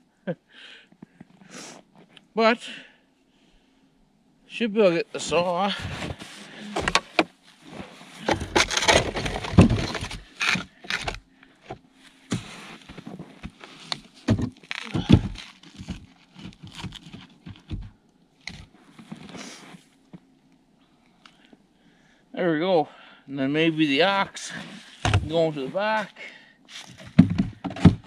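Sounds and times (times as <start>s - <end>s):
logs knocking and scraping: 5.3s - 19.4s, 24.3s - 25.8s, 26.8s - 28.0s.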